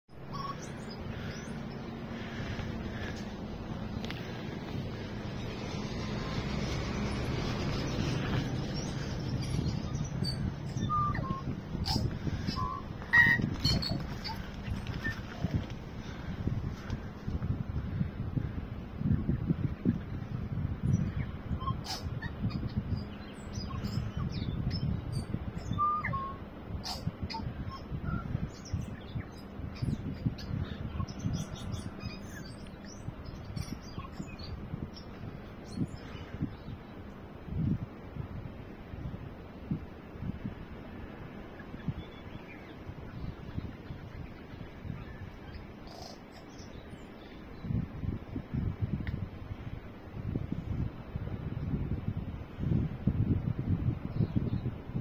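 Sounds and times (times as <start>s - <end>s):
bird singing: 0.1s - 3.3s, 7.0s - 16.2s, 20.8s - 37.1s, 41.5s - 47.8s
low rumble: 0.1s - 21.6s
steady low rumble: 0.1s - 55.0s.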